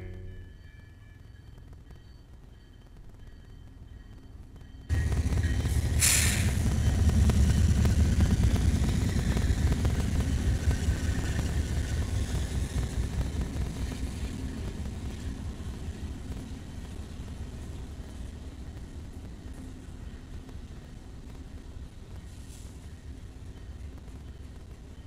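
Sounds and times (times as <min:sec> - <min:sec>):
train rumbling past: 0:00.0 - 0:25.0
short burst of hiss: 0:06.0 - 0:06.5.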